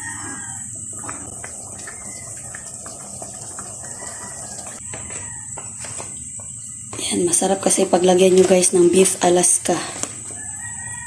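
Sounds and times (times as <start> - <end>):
stew bubbling and popping: 0.8 - 4.8.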